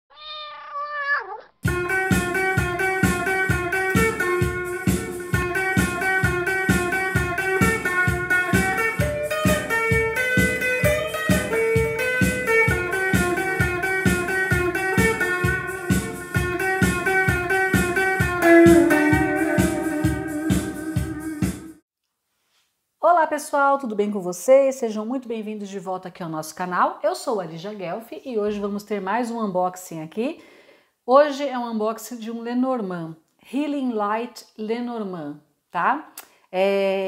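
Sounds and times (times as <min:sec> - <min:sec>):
plucked string music: 0:01.7 - 0:21.8.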